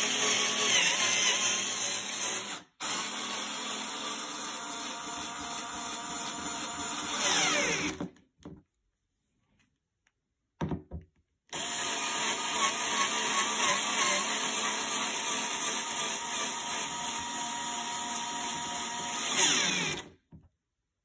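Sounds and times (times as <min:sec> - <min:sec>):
power screwdriver driving screw: 0:11.6 - 0:20.1.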